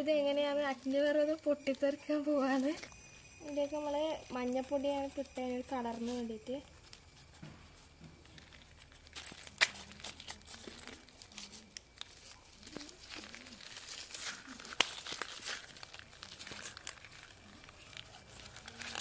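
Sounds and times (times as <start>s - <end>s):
paper crinkling: 5.0s - 19.0s
sharp paper snaps: 9.1s - 19.0s.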